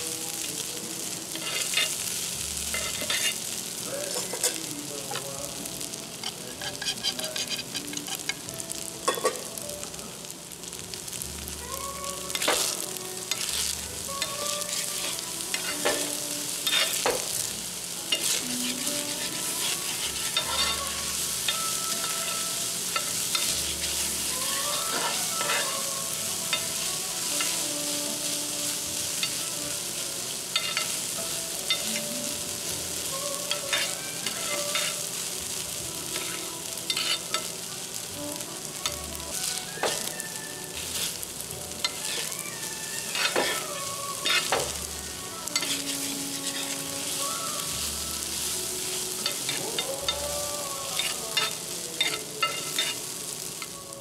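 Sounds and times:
fried rice sizzling on griddle: 0.0s - 54.0s
metal spatulas scraping and clicking: 1.3s - 2.0s, 2.7s - 3.4s, 6.2s - 8.4s, 18.1s - 20.8s, 33.5s - 35.0s, 36.2s - 37.5s, 43.1s - 44.7s, 45.6s - 46.8s, 51.0s - 53.0s.

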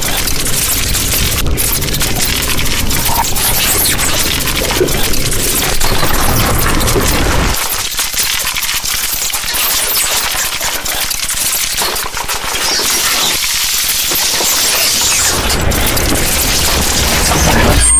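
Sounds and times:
low hum: 0.0s - 7.6s, 15.2s - 17.9s
harsh electronic noise music: 0.0s - 7.9s, 12.4s - 17.9s.

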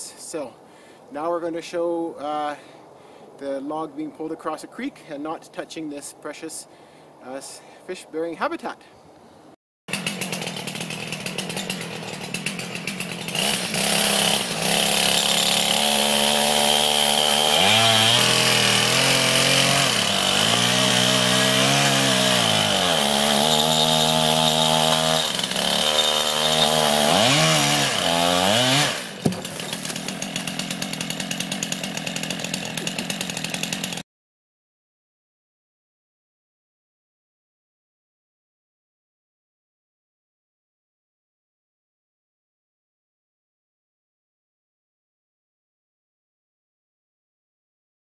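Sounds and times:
chainsaw engine high revs: 9.9s - 34.0s.

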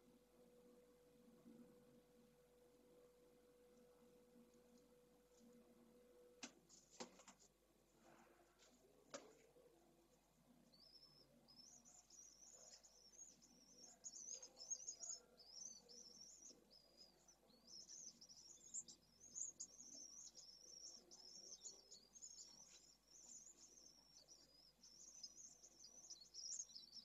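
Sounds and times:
swifts twittering: 10.7s - 27.0s.

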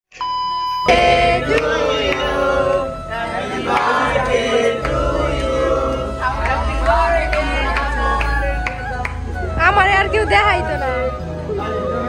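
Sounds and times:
steady electronic beep: 0.1s - 9.3s
choir singing long notes: 0.8s - 12.0s.

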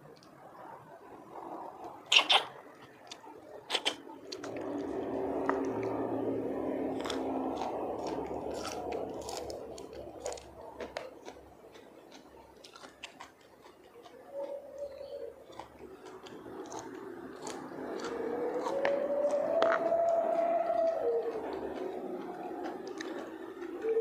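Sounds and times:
chewing green onion: 0.0s - 24.0s
clicks of snail shells: 1.8s - 4.9s.

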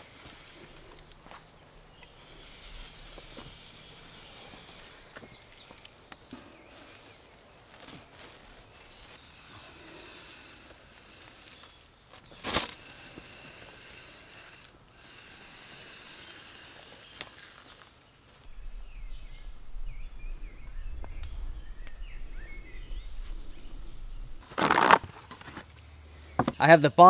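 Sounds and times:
small birds chirping: 0.0s - 24.9s
low rumble: 18.4s - 24.4s.

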